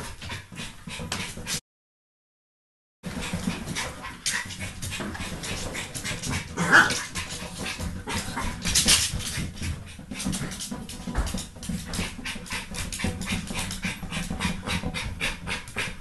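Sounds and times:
dog claws scratching on ball: 0:03.2 - 0:15.9.

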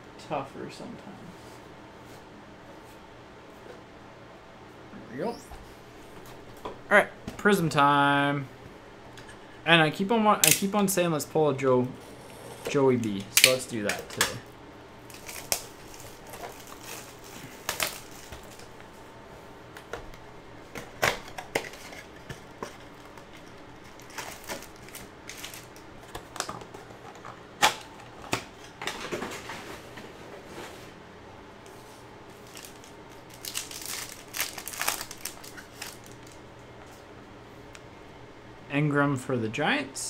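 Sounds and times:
foil pack crinkling: 0:15.0 - 0:18.8, 0:20.9 - 0:27.9, 0:32.3 - 0:36.4.

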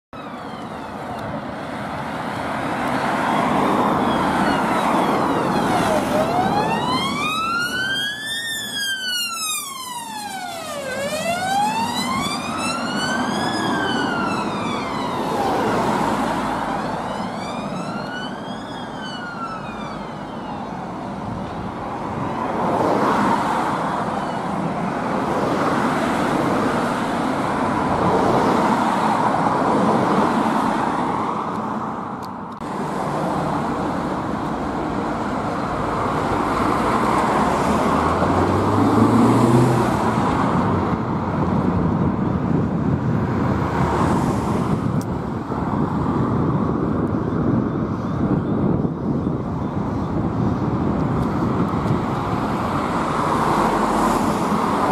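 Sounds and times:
road traffic passing: 0:00.1 - 0:54.9
ambulance siren wailing: 0:00.2 - 0:01.6, 0:03.2 - 0:21.2, 0:22.2 - 0:24.8.

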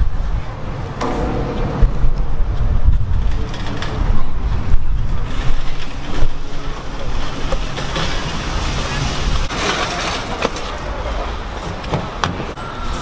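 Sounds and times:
low rumble of wind or traffic: 0:00.0 - 0:13.0
shopping cart rattling on concrete: 0:05.2 - 0:11.2.

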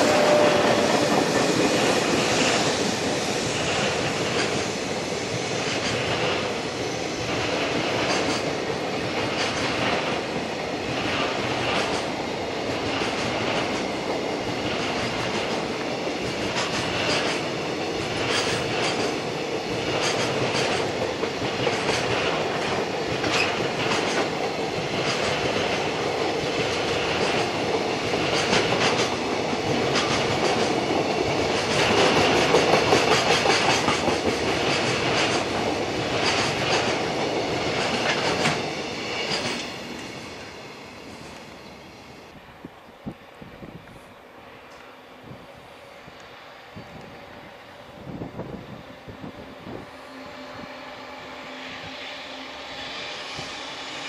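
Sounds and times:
clickety-clack over rail joints: 0:00.0 - 0:40.5
train wheels rumbling on rail: 0:00.0 - 0:54.0.

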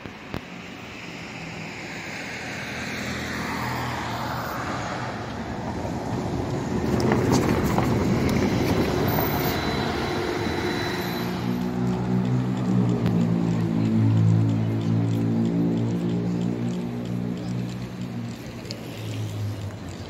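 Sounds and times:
trolleybus drive whine: 0:00.0 - 0:20.0
tyre and running noise: 0:06.0 - 0:09.7.

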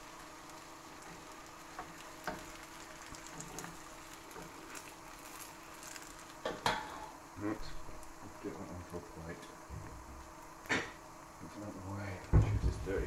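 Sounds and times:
pancake sizzling in a frying pan: 0:00.0 - 0:09.4.

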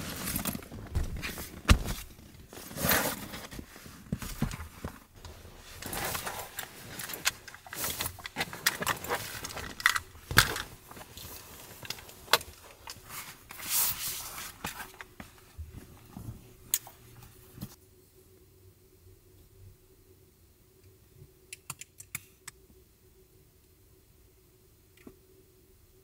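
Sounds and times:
fabric rustling: 0:00.0 - 0:17.8.

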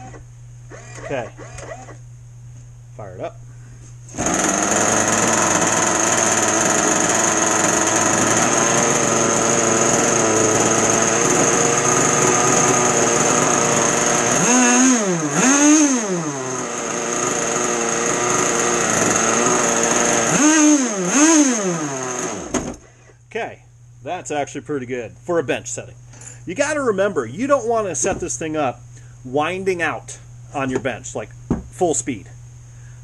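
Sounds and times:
two-stroke engine running and revving: 0:04.2 - 0:22.5.

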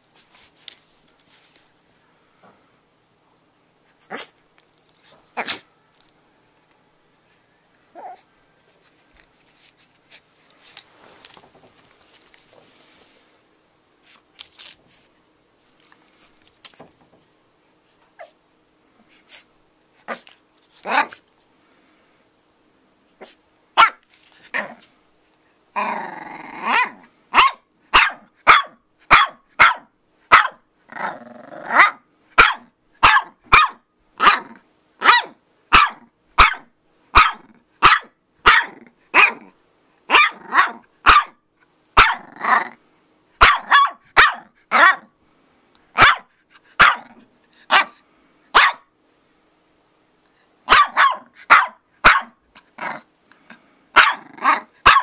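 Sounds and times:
puppy barking in sharp yaps: 0:23.8 - 0:24.0, 0:26.7 - 0:30.6, 0:31.7 - 0:39.5, 0:40.1 - 0:41.4, 0:42.0 - 0:42.2, 0:43.4 - 0:45.1, 0:46.0 - 0:48.0, 0:48.6 - 0:48.9, 0:50.7 - 0:52.4, 0:54.0 - 0:55.0
puppy growling: 0:24.5 - 0:25.0, 0:25.8 - 0:27.1, 0:30.9 - 0:32.0, 0:42.0 - 0:42.8, 0:52.6 - 0:53.1, 0:54.0 - 0:54.8.

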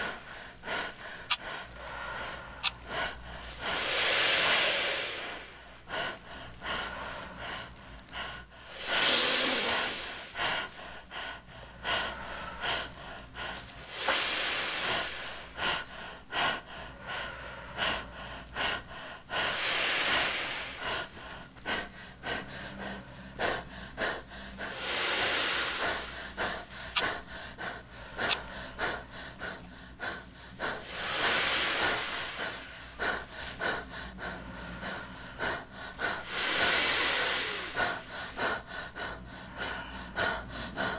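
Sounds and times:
person breathing in deeply: 0:00.0 - 0:40.9
person blowing into bag: 0:03.6 - 0:05.7, 0:08.7 - 0:10.7.

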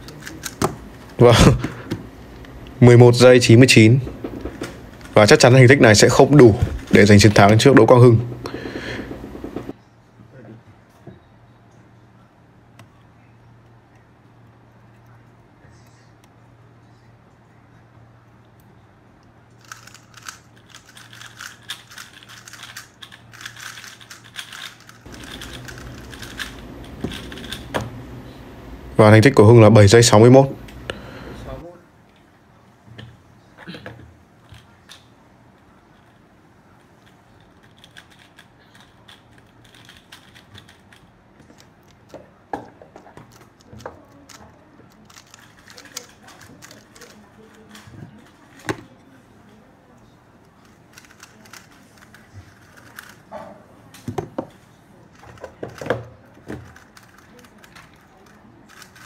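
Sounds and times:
plastic cube clacking: 0:19.6 - 0:27.7, 0:37.4 - 0:42.1, 0:43.2 - 0:48.8, 0:50.6 - 0:53.3, 0:55.2 - 0:59.0
puzzle cube clicking: 0:19.6 - 0:27.7, 0:50.9 - 0:53.2.

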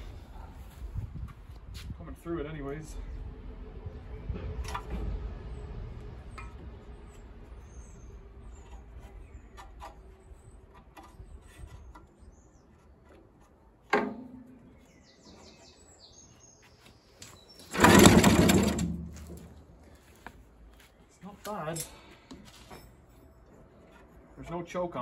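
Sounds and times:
birds chirping: 0:06.4 - 0:13.7, 0:14.4 - 0:18.1
engine turning over on recoil starter: 0:17.7 - 0:19.1.

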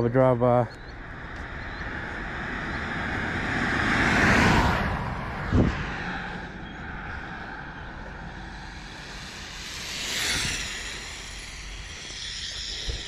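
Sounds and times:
wind on microphone: 0:01.0 - 0:13.0
toy car electric motor whining: 0:08.6 - 0:13.0.

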